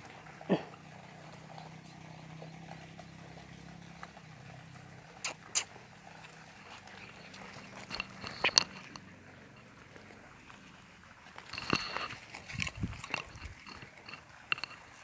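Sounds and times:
sharp clicks and taps on gravel: 0:05.2 - 0:15.0.

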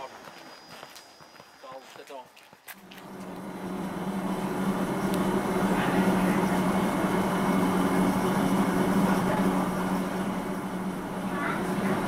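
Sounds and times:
electric train motor hum: 0:02.8 - 0:12.0.

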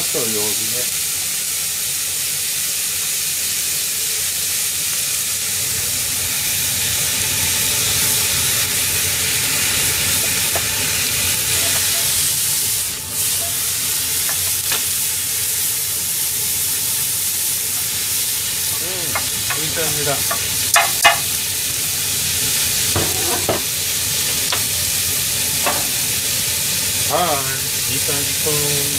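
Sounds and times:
meat sizzling in a frying pan: 0:00.0 - 0:28.9
water boiling: 0:00.0 - 0:28.9
wooden spatula scraping pan: 0:22.9 - 0:23.7.

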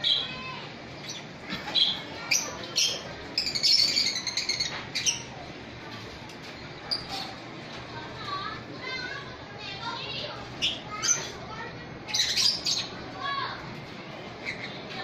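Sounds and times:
lovebirds chirping and squawking: 0:00.0 - 0:07.4, 0:10.3 - 0:11.4, 0:12.0 - 0:13.1, 0:14.3 - 0:15.0.

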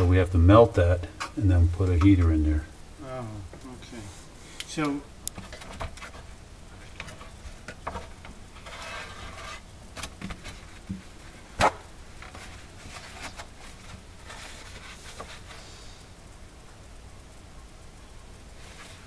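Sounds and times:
paper towel brushing surface: 0:07.0 - 0:09.7, 0:18.6 - 0:19.0.

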